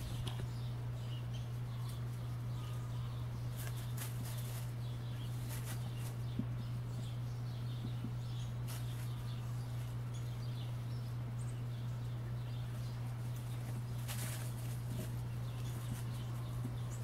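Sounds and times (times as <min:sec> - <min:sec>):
dry leaves rustling: 0:00.0 - 0:07.2, 0:08.0 - 0:17.0
faint bird chirps: 0:00.0 - 0:13.6
steady low hum: 0:00.0 - 0:17.0.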